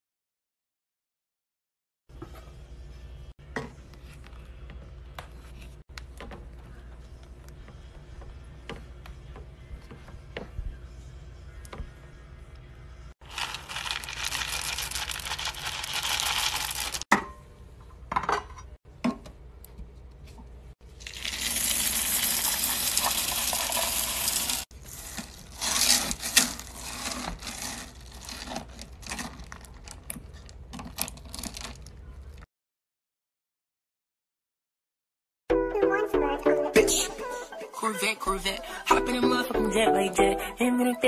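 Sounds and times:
wax beads poured into metal pot: 0:13.2 - 0:17.1, 0:21.0 - 0:29.3
wooden spatula scraping wax: 0:24.8 - 0:29.7.

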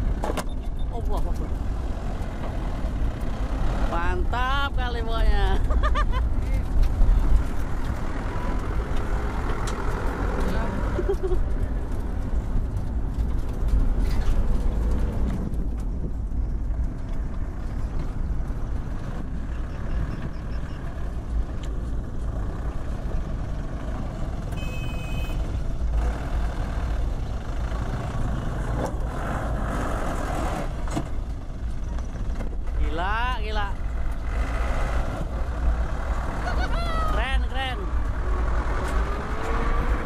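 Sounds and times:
truck engine rumbling: 0:00.0 - 0:40.0
high beep: 0:24.6 - 0:25.4.

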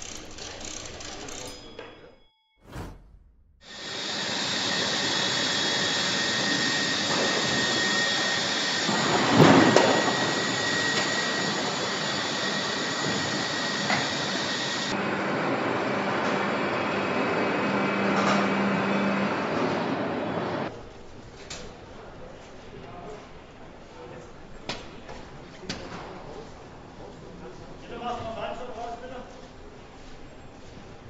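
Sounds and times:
low hum: 0:01.5 - 0:03.8.

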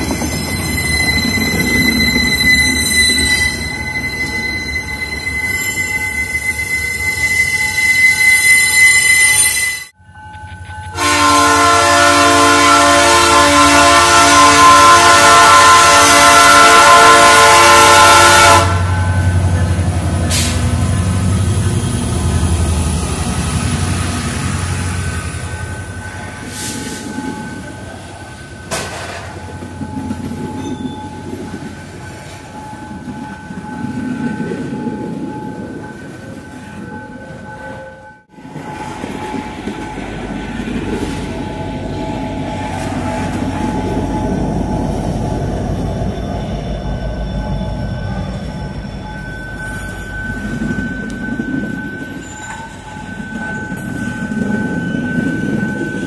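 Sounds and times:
diesel locomotive rumbling: 0:00.0 - 0:09.3, 0:09.9 - 0:56.0
train wheel squeal: 0:00.0 - 0:11.2, 0:18.2 - 0:56.0
wheels clanking over rail joints: 0:18.9 - 0:56.0.

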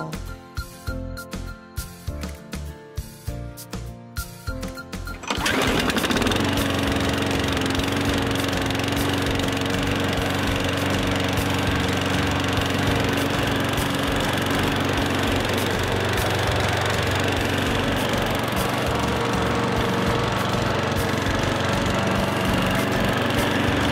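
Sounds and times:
lawn mower engine running: 0:05.1 - 0:23.9.

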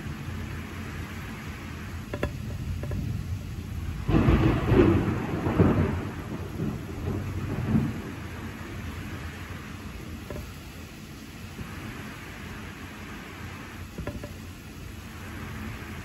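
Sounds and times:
steady rain: 0:00.0 - 0:16.0
thunder: 0:04.0 - 0:09.2.

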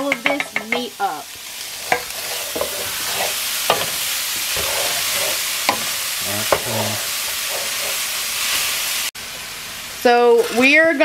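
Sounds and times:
spatula knocking on pan: 0:00.0 - 0:00.9, 0:05.7 - 0:05.9
meat sizzling in a skillet: 0:00.0 - 0:11.0.

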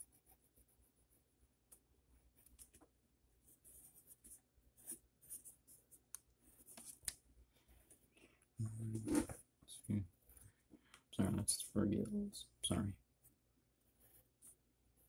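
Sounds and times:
pencil scratching on paper: 0:00.0 - 0:01.4, 0:03.4 - 0:07.0, 0:13.2 - 0:15.0.

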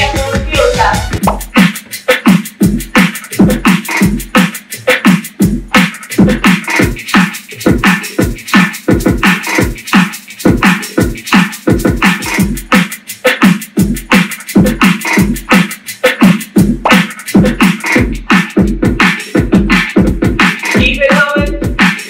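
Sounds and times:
dance workout music: 0:00.0 - 0:22.0.

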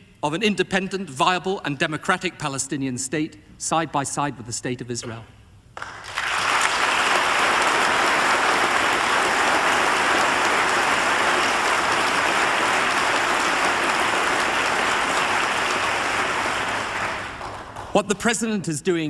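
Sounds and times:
crowd applauding: 0:05.8 - 0:18.0.

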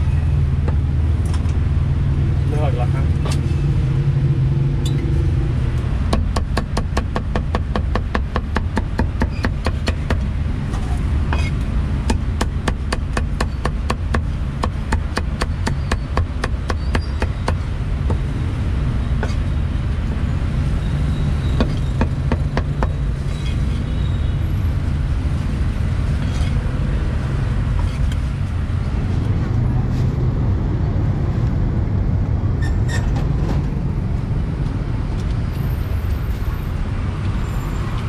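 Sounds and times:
street traffic rumble: 0:00.0 - 0:38.0
cleaver chopping on wooden block: 0:06.1 - 0:10.3, 0:12.1 - 0:18.2.

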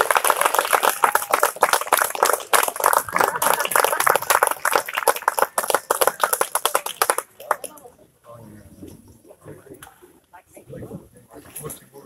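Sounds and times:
crowd applauding: 0:00.0 - 0:07.8.

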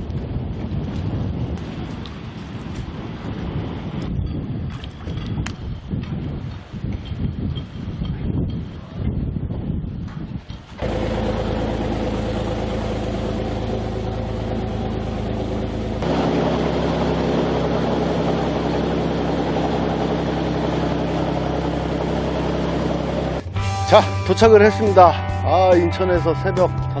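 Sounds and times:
wind noise: 0:00.0 - 0:27.0
churning water: 0:10.8 - 0:23.4
boat engine running: 0:10.8 - 0:27.0.

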